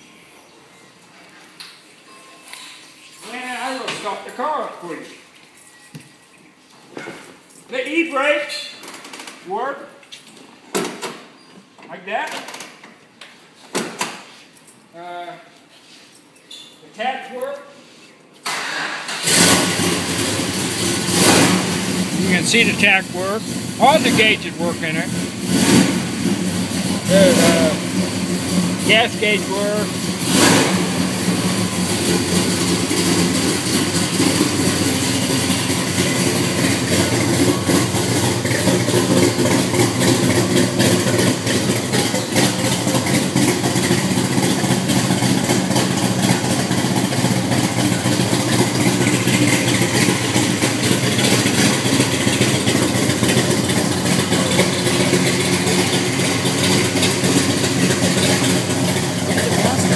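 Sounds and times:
vee-eight engine idling: 19.3s - 59.9s.

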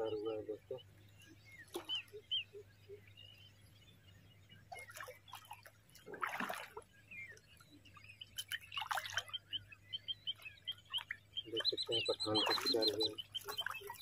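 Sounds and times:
fish splashing at water surface: 4.8s - 6.8s.

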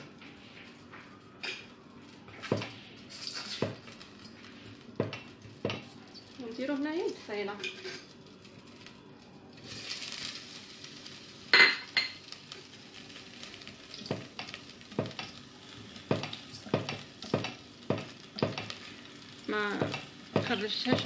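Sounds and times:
onion sizzling in oil: 0.0s - 21.0s.

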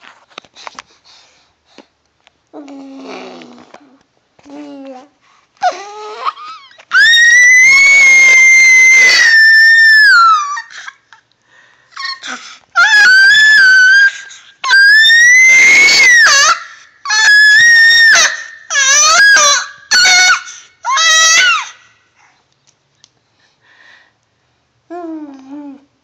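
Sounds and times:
baby squealing: 12.0s - 21.8s.

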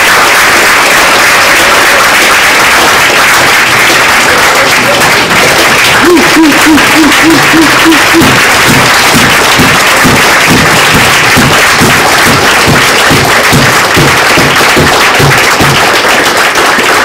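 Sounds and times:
audience applauding: 0.0s - 17.0s
music with steady low beat: 7.5s - 15.8s.

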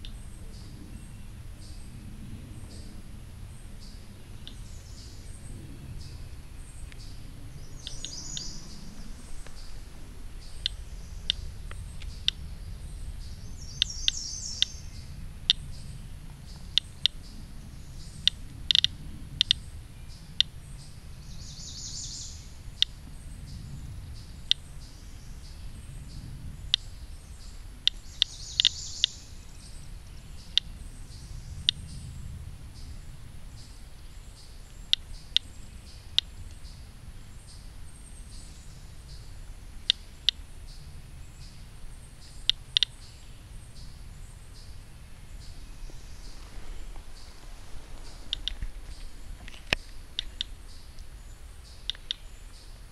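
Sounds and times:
birds chirping: 0.0s - 52.9s
geiger counter clicking: 18.2s - 19.6s, 48.3s - 48.6s, 49.7s - 50.5s, 51.8s - 52.2s.

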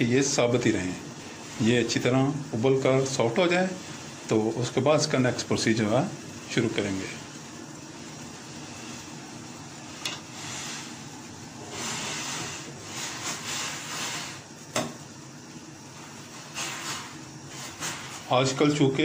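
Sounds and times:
water boiling in a saucepan: 0.0s - 19.0s.

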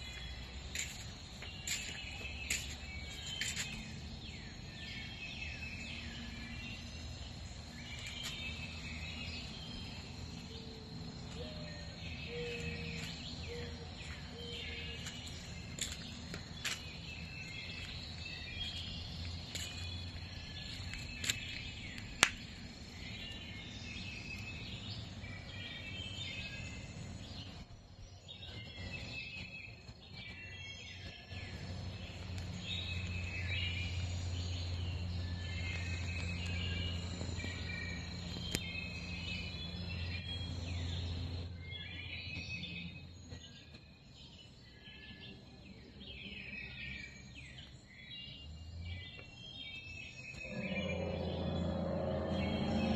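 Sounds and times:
songbirds chirping and singing: 0.0s - 52.9s
low hum: 50.3s - 52.9s.

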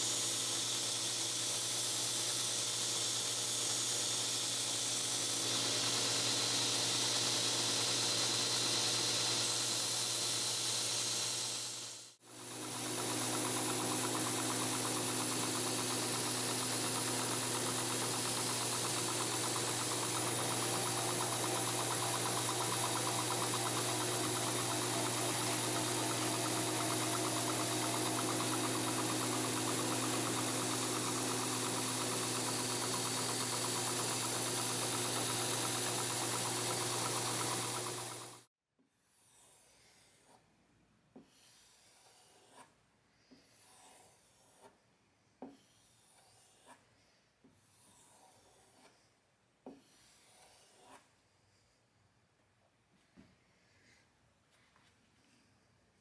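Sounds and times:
belt grinder running: 0.0s - 38.5s.

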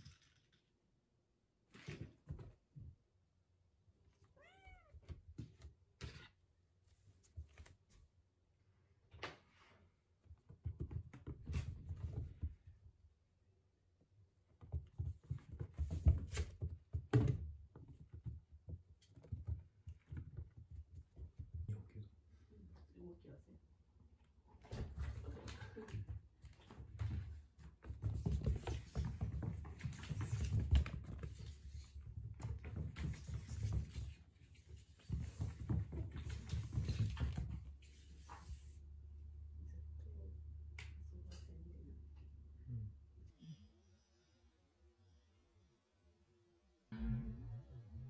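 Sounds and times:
kitten paws thumping on floor: 24.7s - 38.6s.

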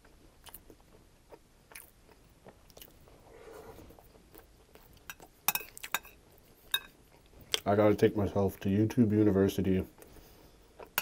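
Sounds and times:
close-miked chewing: 0.0s - 7.8s.

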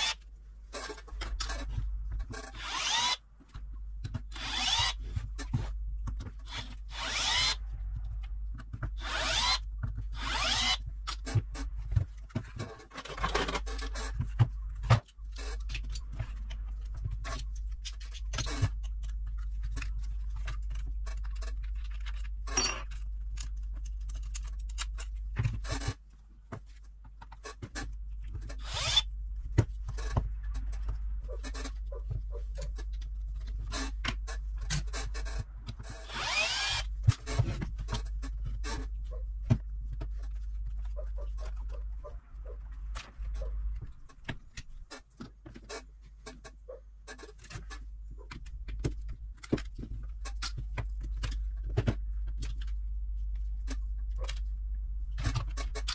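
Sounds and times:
plastic and metal parts clicking: 0.0s - 26.0s
steady low hum: 0.0s - 55.9s
cordless screwdriver whirring: 2.5s - 3.2s, 4.3s - 5.0s, 6.4s - 7.6s, 9.0s - 10.8s, 28.5s - 29.0s, 36.0s - 36.9s.

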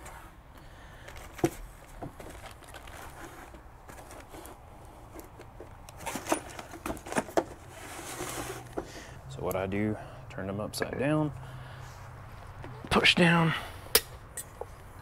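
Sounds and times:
plastic wrapping crinkling: 1.9s - 4.5s.

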